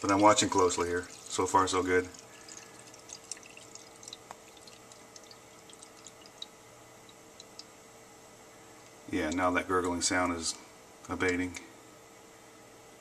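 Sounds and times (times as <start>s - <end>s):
water trickling and gurgling: 0.0s - 7.7s
water dripping ticks: 0.0s - 7.8s, 9.2s - 9.5s
faint steady hum: 0.0s - 13.0s.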